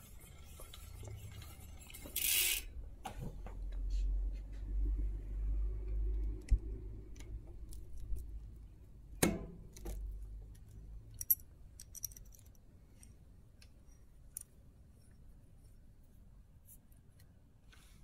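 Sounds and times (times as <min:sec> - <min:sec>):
bicycle chain clicking and jangling: 0:02.2 - 0:02.7
chain link snapping open: 0:11.1 - 0:12.6.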